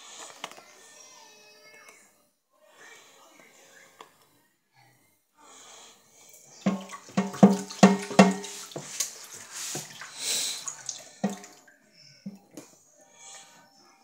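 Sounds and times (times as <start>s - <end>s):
hairbrush knocking on steel sink: 6.7s - 9.1s, 11.2s - 11.6s
water splashing in sink: 6.7s - 11.6s.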